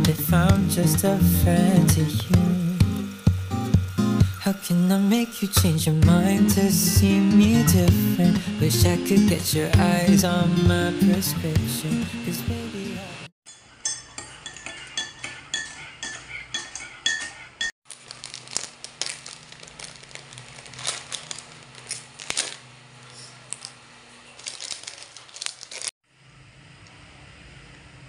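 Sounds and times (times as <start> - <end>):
spoon clinking in mug: 13.5 - 17.4
snack packet crinkling: 17.9 - 26.0.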